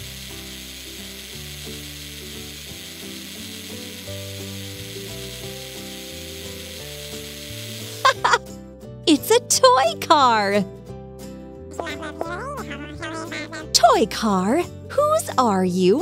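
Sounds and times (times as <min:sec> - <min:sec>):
toy car electric motor whirring: 0:00.0 - 0:08.4
soft background music: 0:00.0 - 0:16.0.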